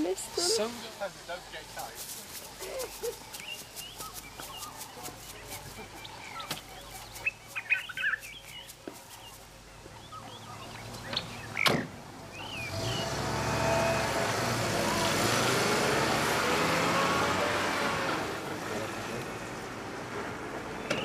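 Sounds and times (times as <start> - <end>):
birds chirping: 0.0 - 14.0, 20.6 - 21.0.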